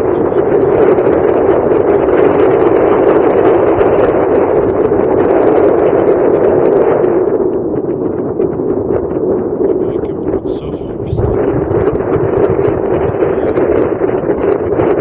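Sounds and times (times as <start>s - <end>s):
strong wind buffeting microphone: 0.0s - 15.0s.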